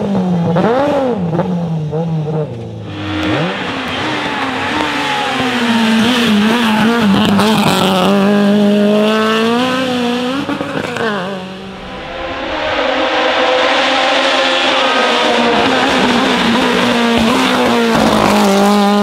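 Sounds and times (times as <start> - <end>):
racing car engines revving: 0.0 - 19.0.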